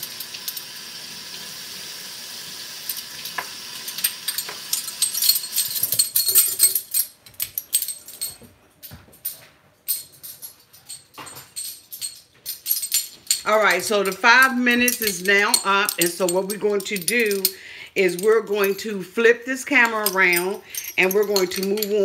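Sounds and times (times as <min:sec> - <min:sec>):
tap water running: 0:00.0 - 0:05.7
dishes clattering: 0:02.9 - 0:18.8.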